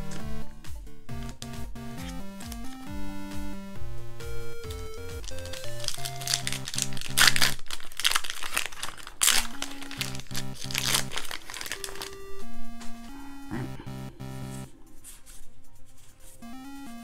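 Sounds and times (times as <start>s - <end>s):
lofi chiptune background music: 0.0s - 17.0s
foil wrapper crinkling: 4.6s - 12.9s.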